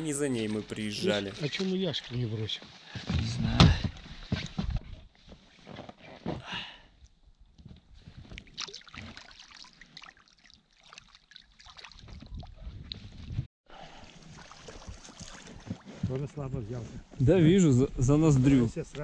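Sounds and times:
water sloshing and splashing: 8.0s - 16.2s.

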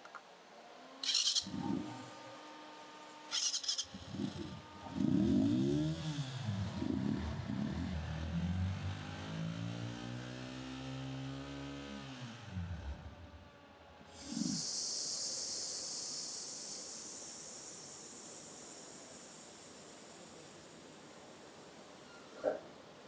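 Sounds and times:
rickshaw engine revving: 3.3s - 21.3s
steady high hiss: 14.2s - 23.0s.

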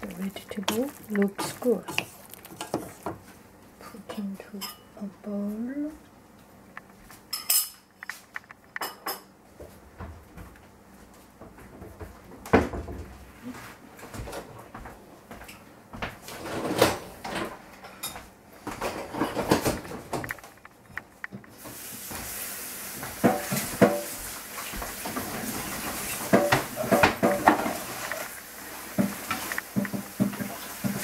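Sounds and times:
dishes clattering: 7.3s - 9.3s, 16.4s - 20.8s, 25.0s - 28.3s
sharp clicks and thuds: 19.4s - 21.5s
water running from tap: 21.6s - 31.0s.

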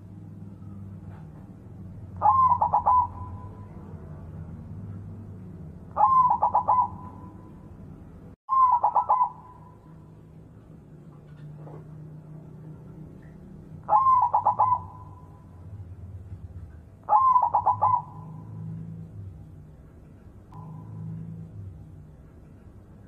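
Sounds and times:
dove cooing: 2.2s - 4.0s, 5.9s - 7.6s, 8.5s - 9.8s, 13.8s - 15.4s, 17.1s - 18.8s.

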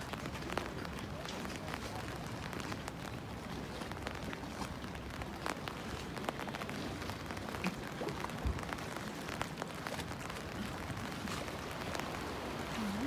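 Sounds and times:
rain falling: 0.0s - 13.0s
sharp ticks of raindrops: 0.0s - 13.0s.

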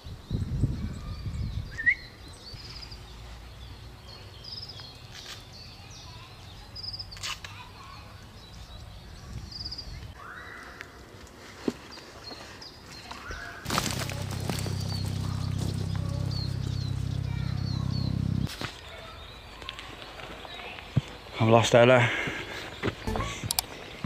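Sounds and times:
birds chirping and trilling: 0.0s - 11.1s, 11.9s - 24.0s
low steady rumble: 13.9s - 18.5s.

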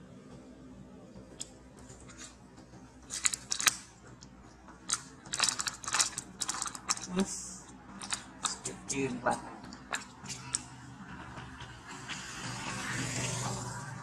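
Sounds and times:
plastic bottle crinkling: 3.1s - 3.8s, 4.9s - 7.2s, 8.0s - 8.7s.

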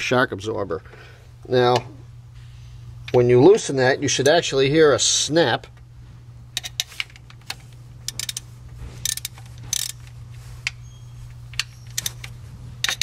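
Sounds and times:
steady low hum: 0.0s - 13.0s
hand ratchet clicking: 6.6s - 10.1s, 11.5s - 13.0s.

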